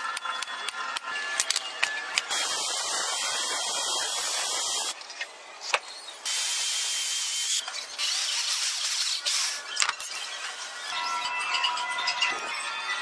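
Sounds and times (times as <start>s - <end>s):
electric drill boring metal: 0.9s - 5.0s, 6.3s - 9.6s.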